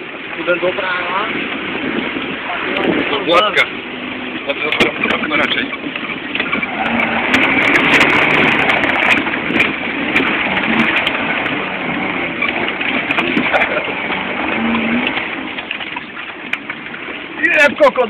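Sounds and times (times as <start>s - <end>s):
rattling road noise: 0.0s - 18.0s
vehicle engine running: 0.0s - 18.0s
clicks and knocks: 4.7s - 11.6s.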